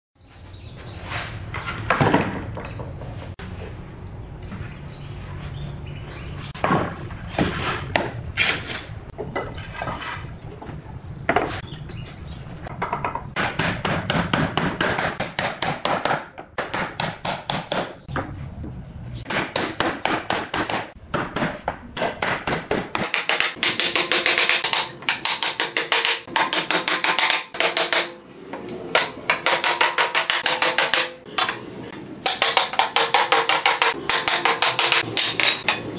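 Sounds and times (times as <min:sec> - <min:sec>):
hammer striking wooden boards: 0:12.7 - 0:18.3, 0:19.3 - 0:28.2, 0:28.9 - 0:31.6, 0:32.2 - 0:35.9.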